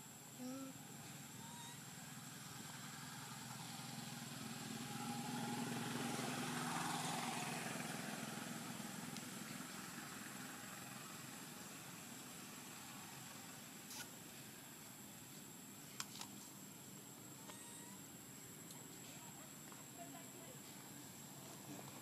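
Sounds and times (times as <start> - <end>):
faint high-pitched whine: 0.0 - 6.4, 8.9 - 22.0
vehicle passing by: 1.8 - 13.5.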